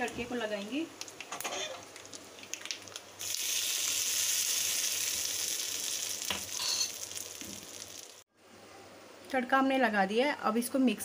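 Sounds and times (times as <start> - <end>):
hot oil sizzling: 1.8 - 8.3.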